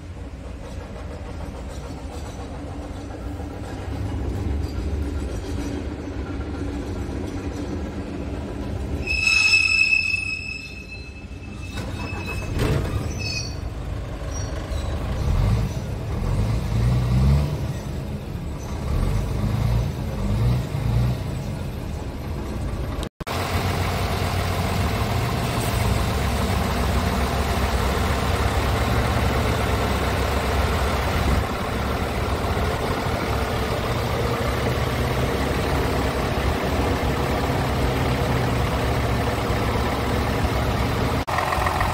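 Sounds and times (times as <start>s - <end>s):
diesel engine revving: 12.2s - 41.9s
diesel engine idling: 21.2s - 41.9s.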